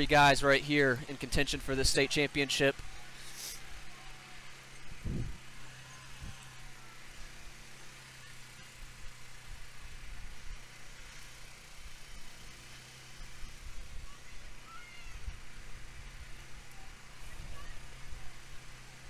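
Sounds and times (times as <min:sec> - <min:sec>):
cart humming and rumbling: 0:00.0 - 0:19.0.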